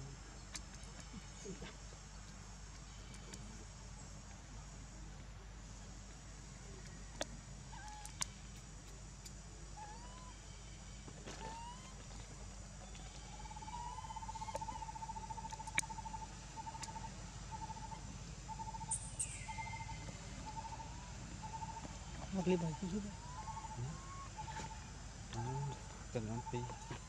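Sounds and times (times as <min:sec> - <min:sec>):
steady low hum: 0:00.0 - 0:27.0
rapidly pulsing animal call: 0:19.5 - 0:27.0.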